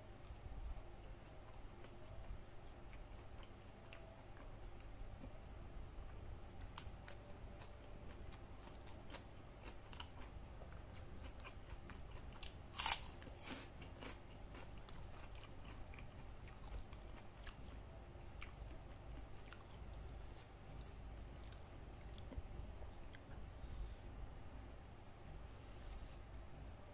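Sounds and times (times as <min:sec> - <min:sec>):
crisp cracker crunch: 0:11.2 - 0:15.8.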